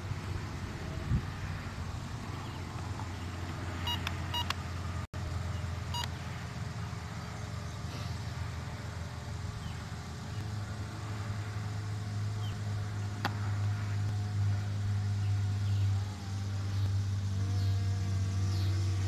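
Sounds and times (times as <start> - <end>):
drone propellers humming: 0.0 - 19.0
short electronic beeps: 3.8 - 4.5.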